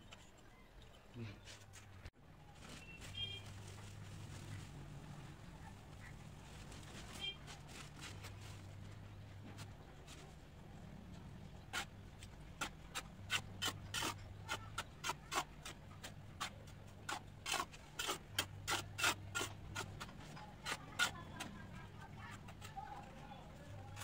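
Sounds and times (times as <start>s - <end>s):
tool scraping dry cement: 11.4s - 24.0s.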